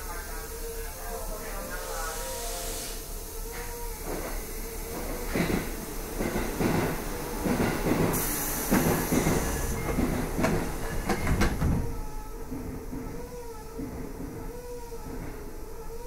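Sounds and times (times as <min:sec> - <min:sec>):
brief high hiss: 0:01.7 - 0:03.7
train wheels knocking over rail joints: 0:04.0 - 0:15.5.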